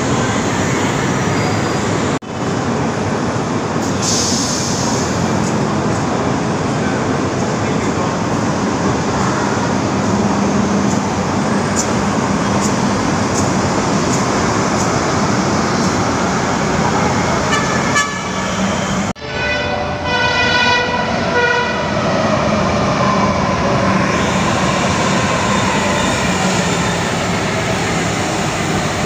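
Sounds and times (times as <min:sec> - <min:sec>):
train rumble: 0:00.0 - 0:19.2, 0:19.8 - 0:29.0
train horn blasts: 0:17.5 - 0:22.0.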